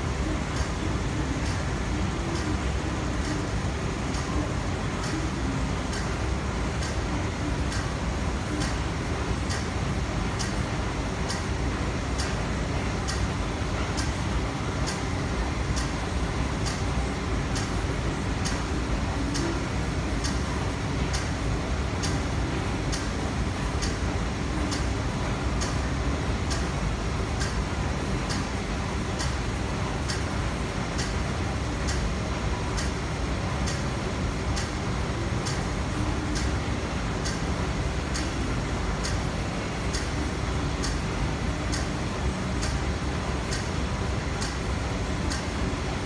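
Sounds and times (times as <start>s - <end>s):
train and platform hum: 0.0s - 46.0s
light high ticking: 34.5s - 45.6s.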